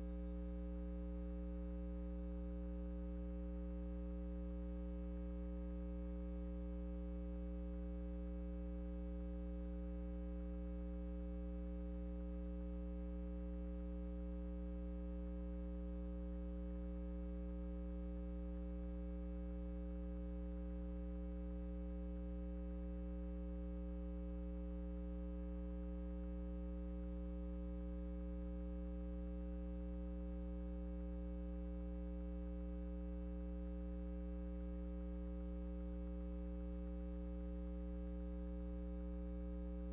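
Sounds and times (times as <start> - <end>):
electrical mains hum: 0.0 - 39.9.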